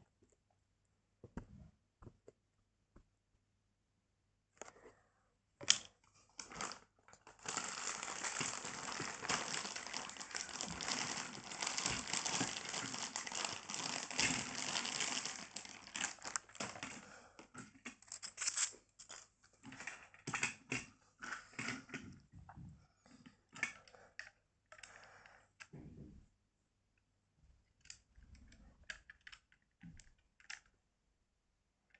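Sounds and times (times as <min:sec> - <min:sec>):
plastic toy cars clicking: 0:05.6 - 0:22.0, 0:27.7 - 0:30.8
plastic bag crinkling: 0:06.4 - 0:17.1.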